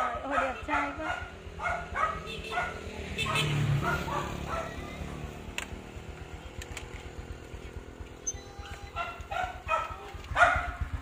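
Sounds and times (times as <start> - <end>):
dog barking: 0.0 - 5.2, 8.9 - 11.0
motorbike engine idling: 0.0 - 11.0.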